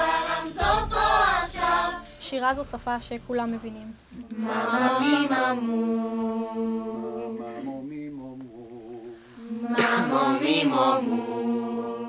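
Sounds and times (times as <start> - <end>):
youth choir singing a cappella: 0.0 - 2.2, 4.2 - 12.0
sharp percussive burst: 0.0 - 4.2.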